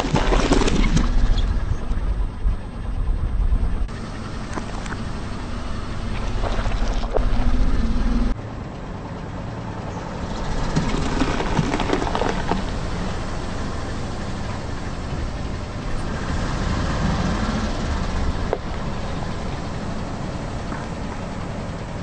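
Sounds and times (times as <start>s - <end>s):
car engine running low: 0.0s - 22.0s
loud low rumble: 0.2s - 21.5s.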